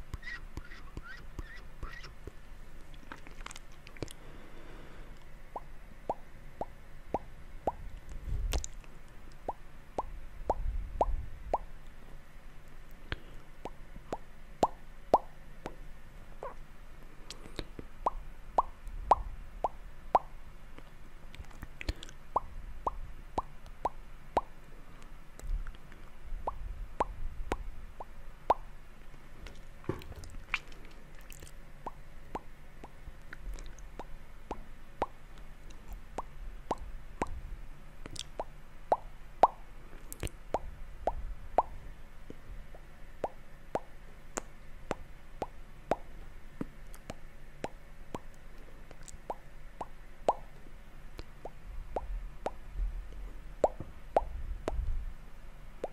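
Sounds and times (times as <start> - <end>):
wet mouth clicks and pops: 2.9 - 4.2, 5.6 - 11.7, 13.1 - 15.3, 17.3 - 20.3, 21.4 - 24.5, 30.2 - 37.4, 38.0 - 41.8, 42.7 - 46.0, 46.9 - 50.5, 51.2 - 52.6.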